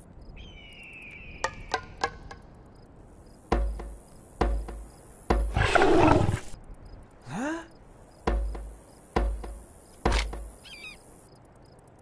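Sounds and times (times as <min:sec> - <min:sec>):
deep booming hits: 0:03.5 - 0:05.6, 0:08.3 - 0:10.5
lion growling: 0:05.5 - 0:06.5.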